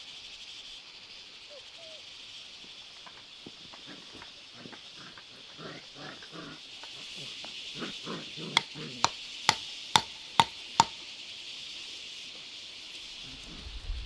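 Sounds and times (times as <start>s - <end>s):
insects droning: 0.0s - 14.0s
hand tool strikes with ring: 8.6s - 11.0s.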